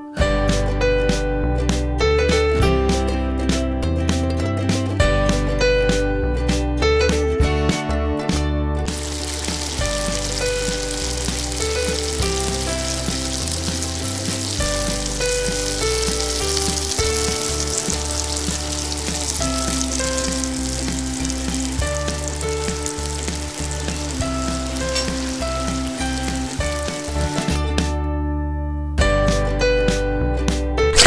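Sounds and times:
melodic background music: 0.0s - 31.0s
garlic and onion sizzling in oil: 8.9s - 27.8s.

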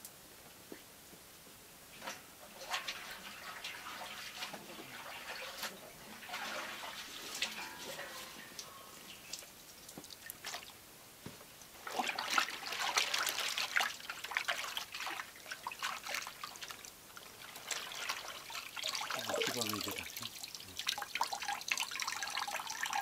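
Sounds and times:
liquid splashing in a tub: 1.9s - 10.8s, 11.8s - 23.0s
dye dripping into tub: 11.8s - 23.0s.

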